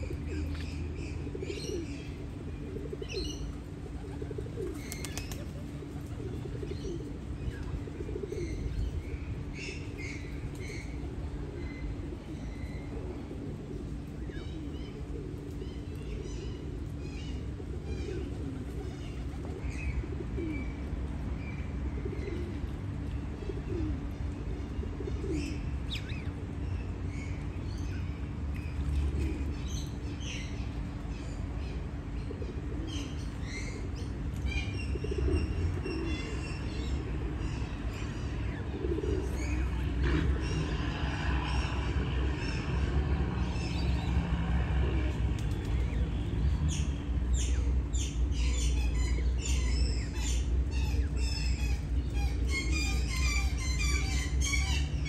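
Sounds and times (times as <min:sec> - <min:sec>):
birds chirping: 0:00.0 - 0:20.8, 0:24.5 - 0:55.0
steady low rumble: 0:00.0 - 0:55.0
low gliding bird calls: 0:23.4 - 0:55.0.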